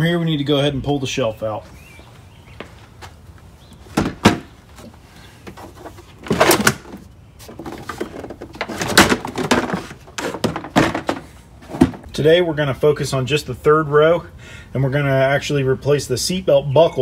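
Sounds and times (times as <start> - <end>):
shelf scraping and rattling: 3.9 - 12.2.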